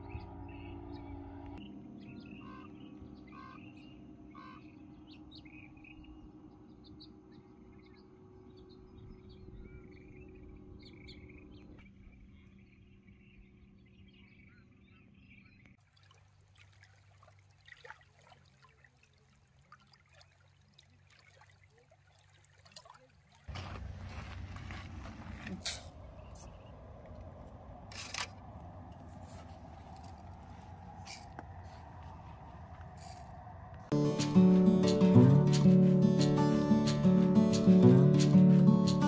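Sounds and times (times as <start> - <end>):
small birds chirping: 0.0 - 15.7, 23.7 - 27.8, 28.5 - 39.0
low steady hum: 0.0 - 15.8.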